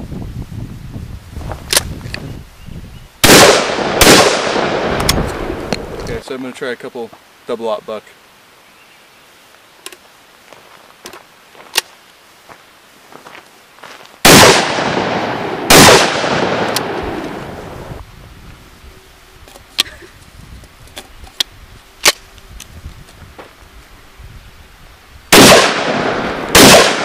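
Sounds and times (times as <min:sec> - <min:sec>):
shotgun blasts with echo: 0:03.2 - 0:05.5, 0:14.2 - 0:17.4, 0:25.3 - 0:27.0
shotgun loading clicks: 0:05.0 - 0:05.8.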